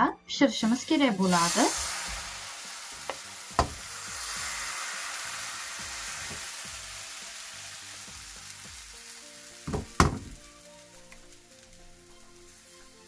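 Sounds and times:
batter sizzling in a frying pan: 0.6s - 13.0s
pan knocking on burner grate: 3.0s - 4.4s, 9.7s - 10.5s.

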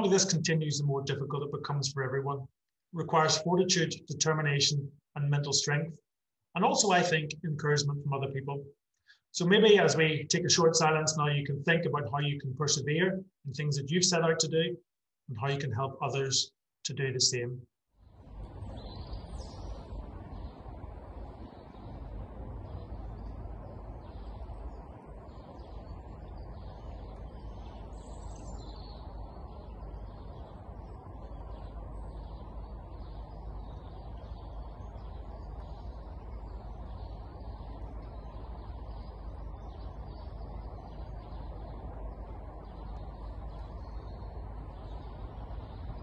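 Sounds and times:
birds chirping: 0.0s - 2.4s, 6.6s - 8.6s, 18.2s - 46.0s
low outdoor rumble: 0.0s - 5.9s, 9.4s - 14.7s, 18.0s - 46.0s.

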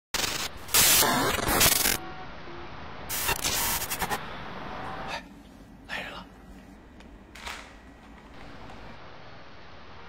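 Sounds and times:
crackles: 0.2s - 2.0s
static hiss bursts: 0.2s - 2.0s, 3.0s - 5.1s.

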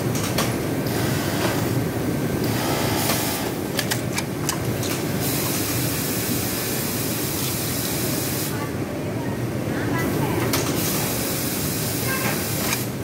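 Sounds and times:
sewing machines droning: 0.3s - 4.2s
sharp mechanical clicks: 3.7s - 5.0s.

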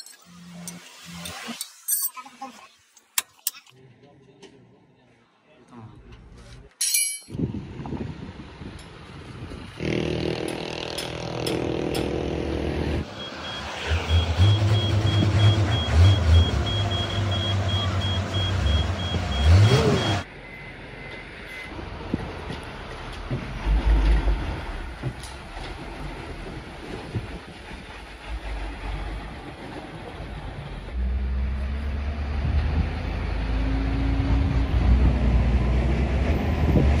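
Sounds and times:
truck diesel engine rumbling: 8.4s - 37.0s.

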